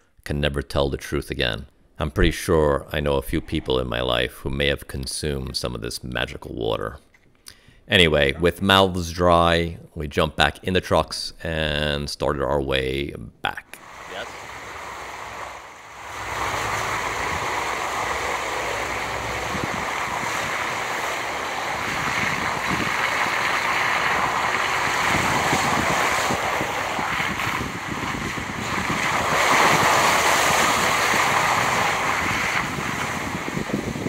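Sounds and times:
tyres splashing through water: 13.8s - 34.0s
wind on microphone: 14.0s - 34.0s.

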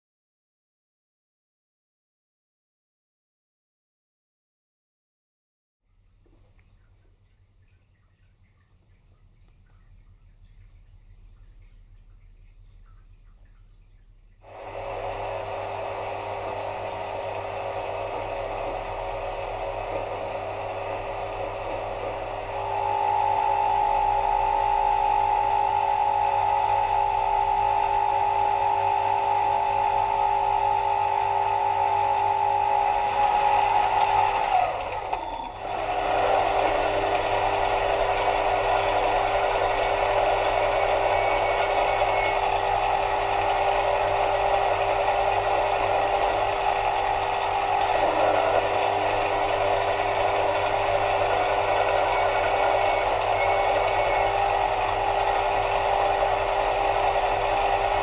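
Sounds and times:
lathe motor whine: 14.5s - 58.0s
lathe tool cutting metal: 14.7s - 58.0s.

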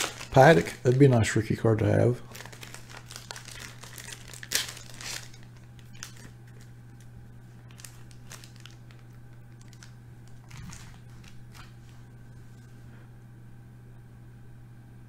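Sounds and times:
cards and sleeves rustling: 0.0s - 6.7s, 7.5s - 12.8s
low electrical hum: 0.0s - 15.0s.

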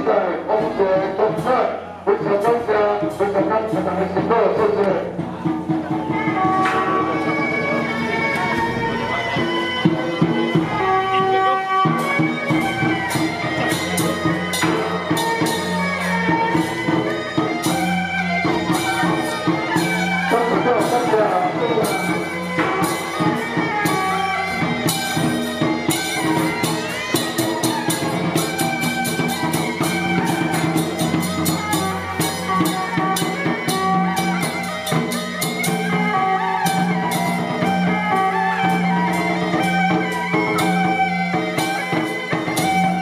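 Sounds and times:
drums and percussion: 0.0s - 43.0s
held melody line: 5.8s - 43.0s.

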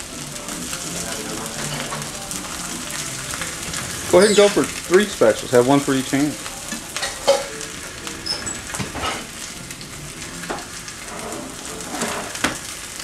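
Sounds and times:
chicken sizzling in a frying pan: 0.0s - 13.0s
spatula scraping and knocking pan: 10.4s - 12.7s.

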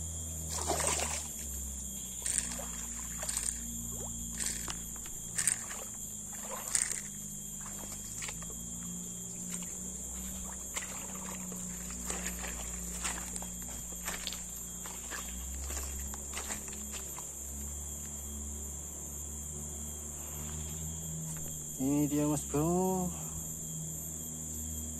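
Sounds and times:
high-pitched insect drone: 0.0s - 24.9s
splash in shallow water: 0.5s - 1.3s, 5.6s - 7.0s
footsteps crunching dry leaves: 10.2s - 17.2s.

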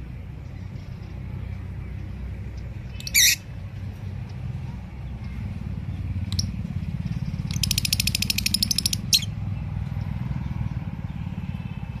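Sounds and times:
parakeet squawking and chattering: 2.9s - 3.6s, 7.4s - 9.4s.

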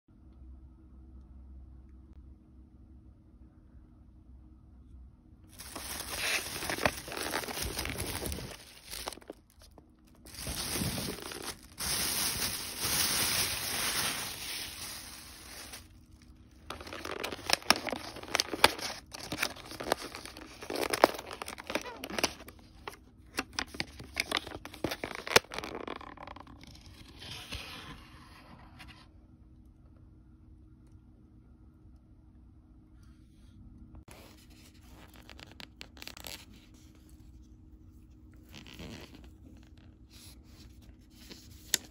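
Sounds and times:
plastic bag rustling: 5.5s - 26.5s.

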